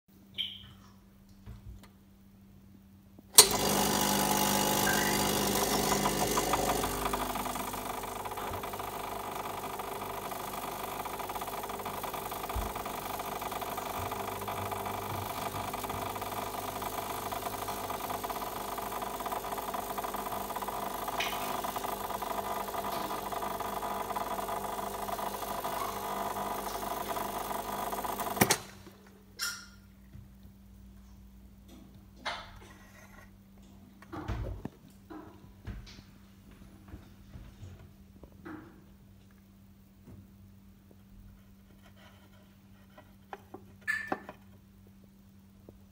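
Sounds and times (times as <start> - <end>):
espresso machine pump buzzing: 3.4 - 28.8, 43.3 - 44.4.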